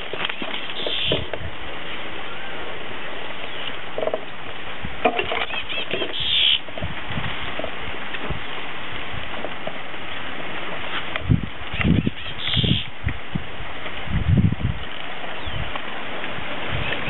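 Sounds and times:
leaves brushing against camera: 0.0s - 2.0s.

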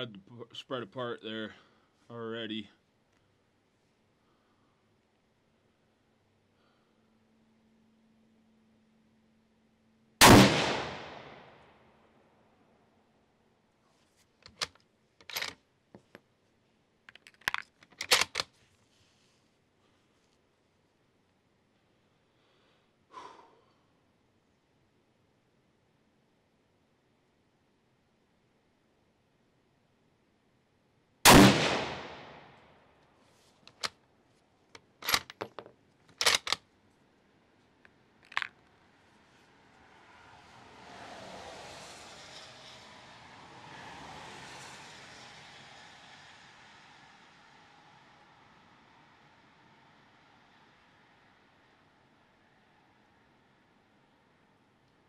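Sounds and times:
rifle shot: 10.2s - 11.7s, 31.2s - 32.6s
cartridges clicking in plastic box: 14.4s - 15.6s, 17.1s - 18.5s, 33.7s - 33.9s, 34.8s - 36.6s, 38.2s - 38.6s
rifle bolt being worked: 14.4s - 15.6s, 17.1s - 18.5s, 33.7s - 33.9s, 34.8s - 36.6s, 38.2s - 38.6s.

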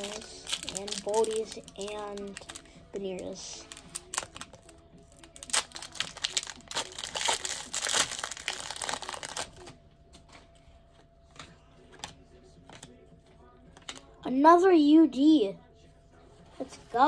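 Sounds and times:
wrapper tearing and crinkling: 0.0s - 9.7s.

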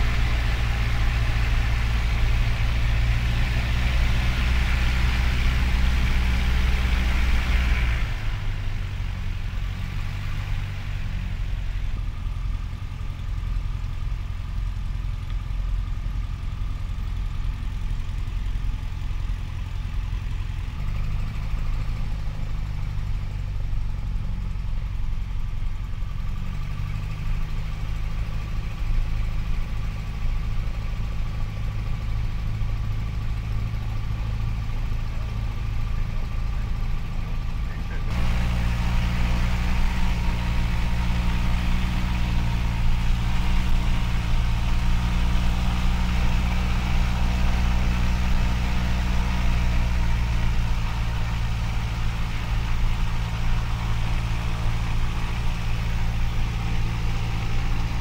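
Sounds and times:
small airplane engine droning: 0.0s - 13.1s, 26.1s - 58.0s.

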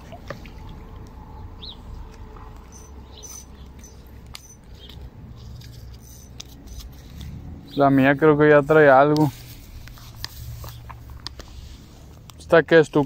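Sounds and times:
low steady rumble: 0.0s - 12.7s
faint bird chirps: 2.7s - 5.0s.

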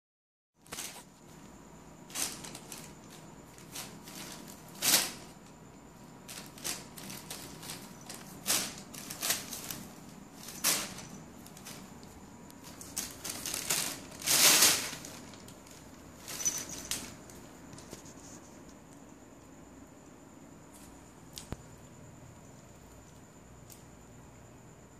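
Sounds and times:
plastic bag rustling: 0.6s - 18.6s.

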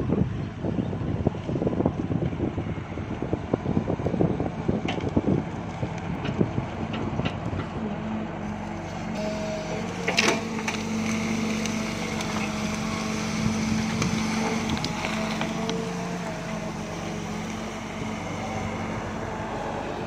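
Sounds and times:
excavator diesel engine running: 1.0s - 20.0s
hydraulic whine: 7.8s - 20.0s.

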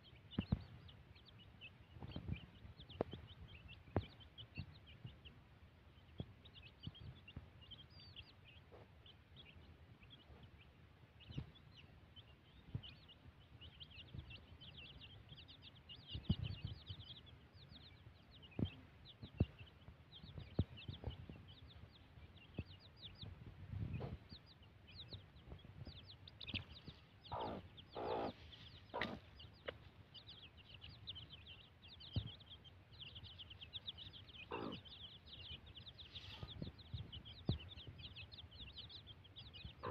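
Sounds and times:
chicks peeping: 0.0s - 39.9s
hen clucking: 23.9s - 32.6s, 33.2s - 38.6s, 39.5s - 39.9s.

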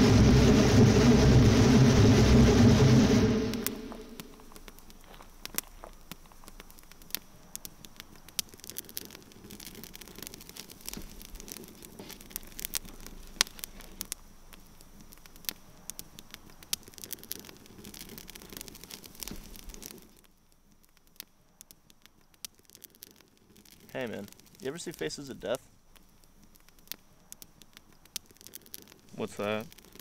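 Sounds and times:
wood fire crackling: 0.0s - 30.0s.

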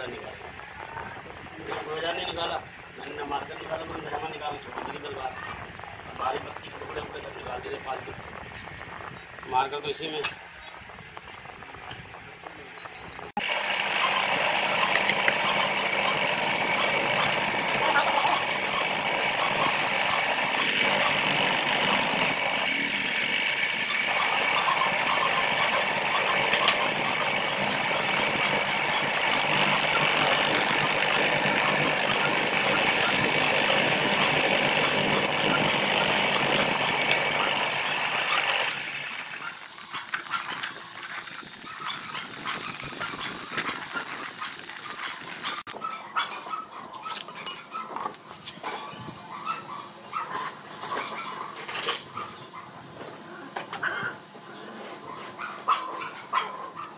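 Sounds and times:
electric drill boring steel: 13.4s - 44.8s
metal clicking and clinking: 40.5s - 41.5s, 46.7s - 48.5s.

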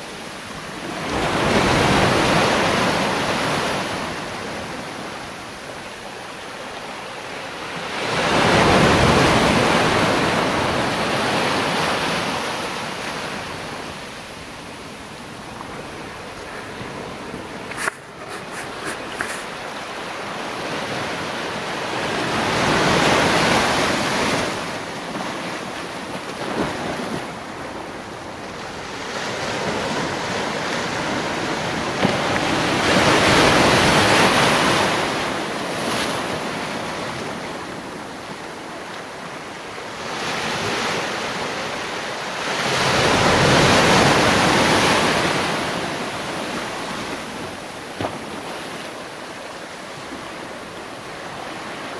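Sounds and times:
sea waves breaking over rocks: 0.0s - 51.9s.

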